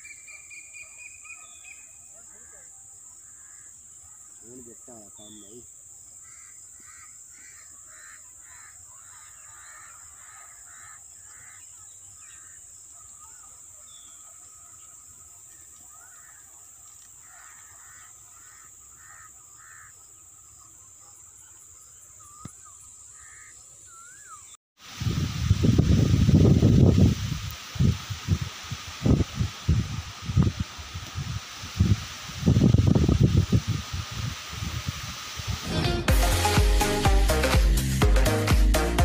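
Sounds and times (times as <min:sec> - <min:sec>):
steady high hiss: 0:00.0 - 0:20.7, 0:22.2 - 0:39.0
birds calling faintly: 0:00.0 - 0:24.6.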